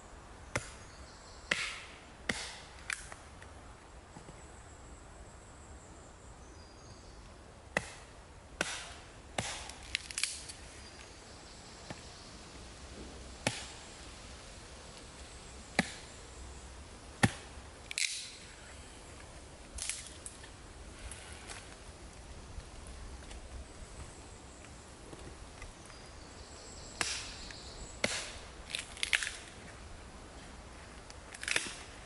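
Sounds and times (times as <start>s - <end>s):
axe chopping branch: 0.5s - 0.8s, 1.5s - 3.2s, 7.7s - 10.6s, 13.0s - 13.9s, 15.7s - 16.1s, 17.2s - 18.4s, 27.0s - 29.5s, 31.4s - 32.0s.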